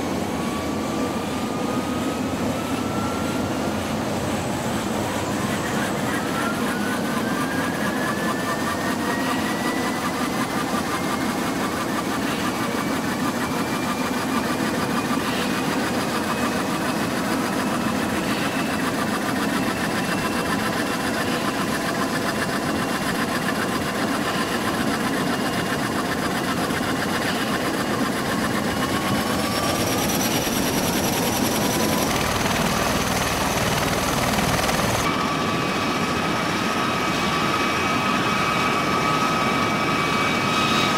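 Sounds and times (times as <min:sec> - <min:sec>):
turbine whine: 0:00.0 - 0:40.9
rotor noise: 0:19.1 - 0:35.1.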